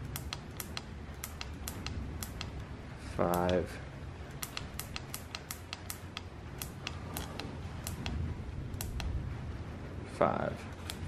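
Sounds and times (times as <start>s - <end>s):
speedometer buttons clicking: 0.0s - 3.7s, 4.3s - 8.2s, 8.8s - 9.1s.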